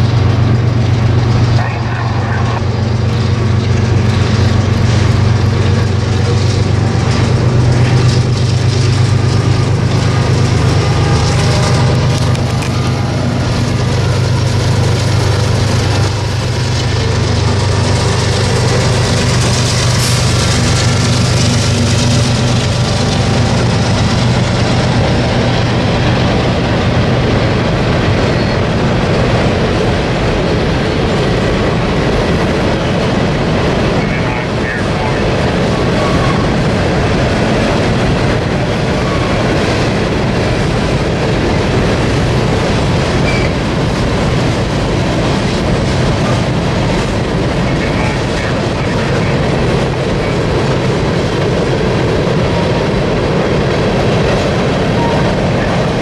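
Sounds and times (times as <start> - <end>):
locomotive engine rumble: 0.0 - 56.0
steel wheels hissing on rails: 0.0 - 56.0.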